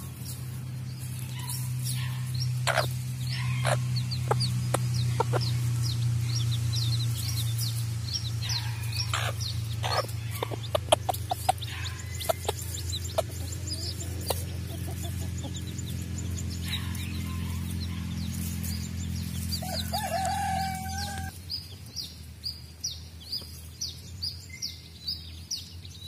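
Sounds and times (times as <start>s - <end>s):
chicks peeping: 0.0s - 26.0s
hen clucking: 1.0s - 21.3s.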